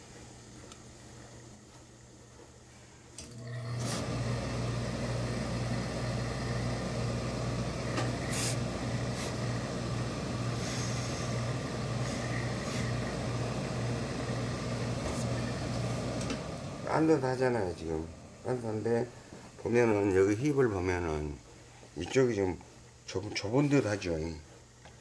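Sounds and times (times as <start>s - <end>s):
pressing equipment humming: 0.0s - 24.2s
steam hissing: 3.7s - 21.3s
sharp steam blasts: 8.0s - 9.5s, 10.4s - 13.2s.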